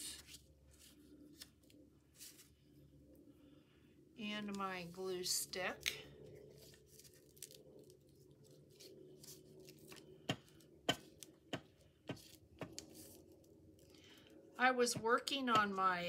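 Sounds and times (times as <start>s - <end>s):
hands handling paper: 5.8s - 11.3s.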